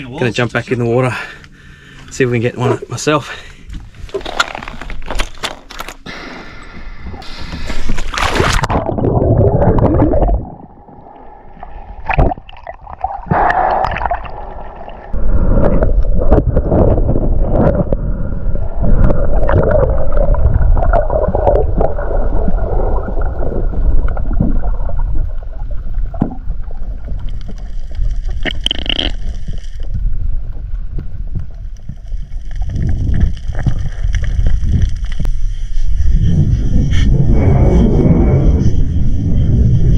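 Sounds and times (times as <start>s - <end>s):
underwater rumble: 6.0s - 39.9s
body plunging into water: 7.2s - 25.3s
gurgling bubbles: 7.2s - 30.2s.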